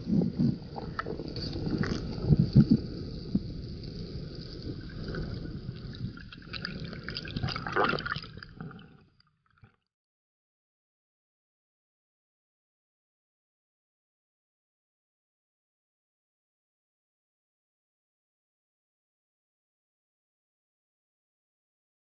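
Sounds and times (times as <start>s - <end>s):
underwater water bubbling: 0.0s - 9.8s.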